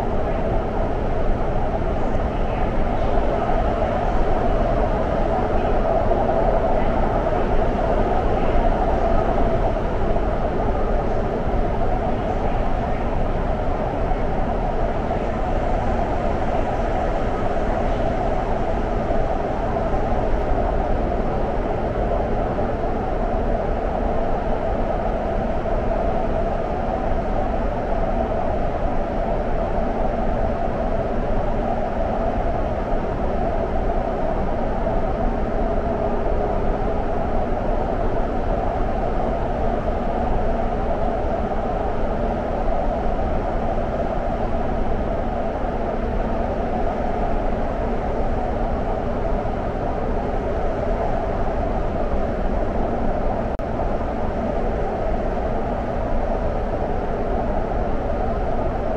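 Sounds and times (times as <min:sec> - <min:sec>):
faint steady hum: 0:00.0 - 0:58.9
train rushing through tunnel: 0:00.0 - 0:58.9.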